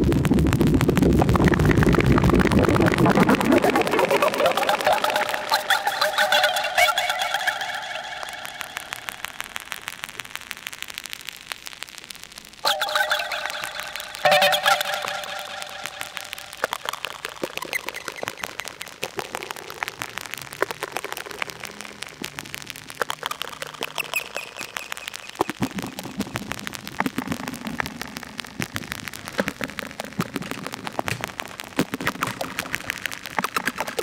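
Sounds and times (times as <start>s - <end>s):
synthesizer clicks and pops: 0.0s - 10.2s, 12.6s - 34.0s
low ringing synth tones: 12.6s - 16.6s.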